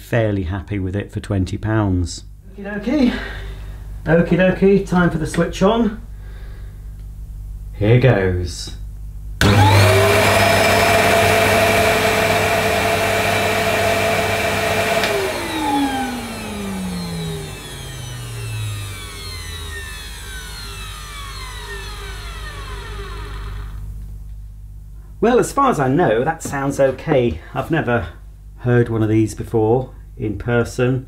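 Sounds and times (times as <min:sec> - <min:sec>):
vacuum cleaner motor whining: 0:09.4 - 0:24.0.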